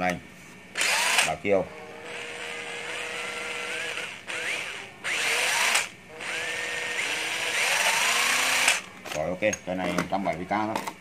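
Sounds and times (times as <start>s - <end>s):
cordless drill motor whine: 0.8s - 8.9s.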